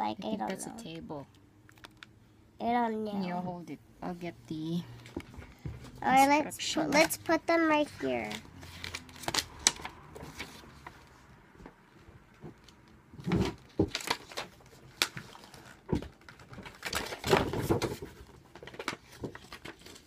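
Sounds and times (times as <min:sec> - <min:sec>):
plastic packaging rustling: 0:12.6 - 0:20.0.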